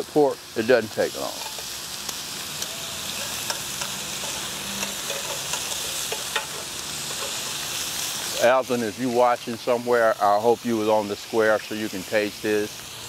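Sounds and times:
meat sizzling in grill pan: 0:00.0 - 0:13.0
metal tongs clicking on pan: 0:01.4 - 0:01.7, 0:02.6 - 0:07.4.

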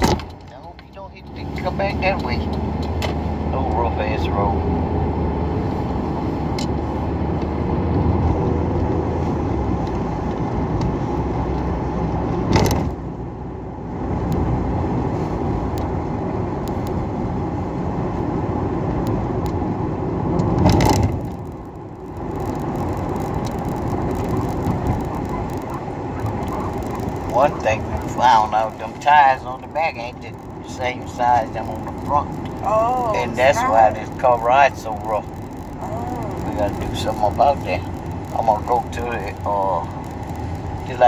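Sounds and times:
low rumble of road and engine: 0:00.0 - 0:41.0.

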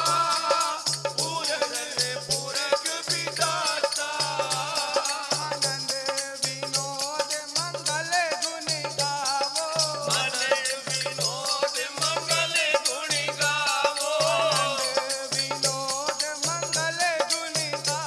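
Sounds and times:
voices singing a hymn: 0:00.0 - 0:06.3, 0:10.1 - 0:15.5
hand drum beat: 0:00.0 - 0:18.0.

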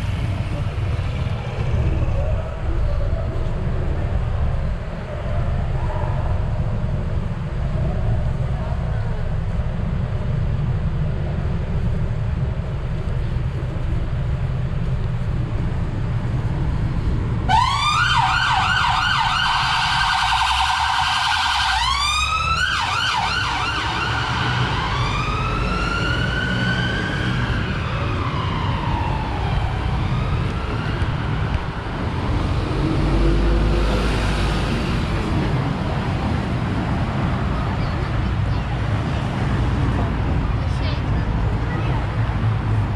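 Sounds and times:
traffic rumble: 0:00.0 - 0:42.9
emergency vehicle siren: 0:17.4 - 0:35.1.

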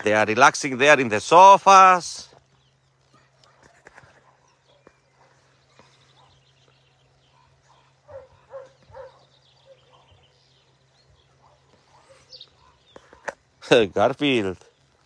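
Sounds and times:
birds chirping: 0:00.0 - 0:15.0
dog barking faintly: 0:03.0 - 0:06.5, 0:07.2 - 0:10.4, 0:11.2 - 0:13.3.

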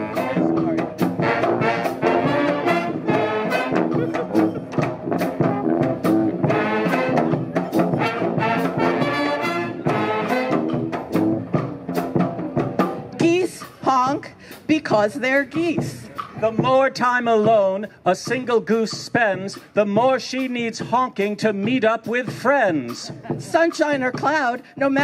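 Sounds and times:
sousaphone: 0:00.0 - 0:10.6
saxophones: 0:00.0 - 0:12.1
trumpets: 0:00.0 - 0:13.8
bass drum beat: 0:00.0 - 0:25.0.

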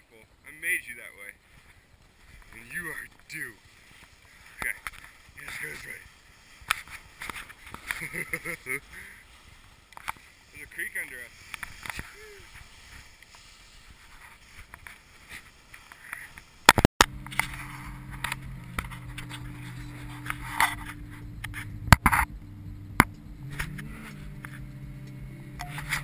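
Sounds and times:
car engine humming: 0:17.0 - 0:26.0
sharp clicks and knocks: 0:21.4 - 0:23.8.

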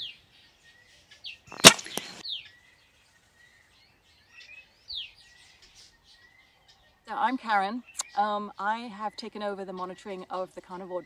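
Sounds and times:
dart gun crack: 0:01.5 - 0:02.2.

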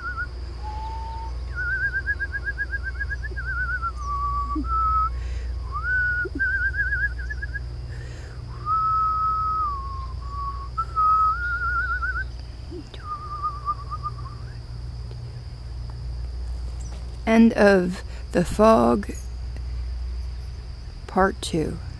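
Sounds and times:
person whistling a tune: 0:00.0 - 0:05.1, 0:05.7 - 0:07.6, 0:08.6 - 0:12.3, 0:12.9 - 0:14.6.

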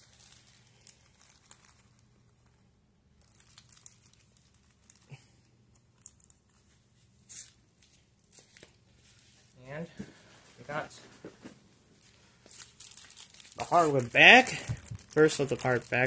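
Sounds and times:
packaging crinkling and rustling: 0:00.0 - 0:10.8, 0:12.0 - 0:16.0.

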